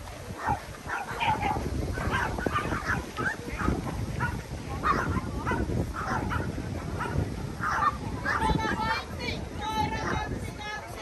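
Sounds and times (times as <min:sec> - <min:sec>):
small dogs barking and yapping: 0:00.4 - 0:08.7.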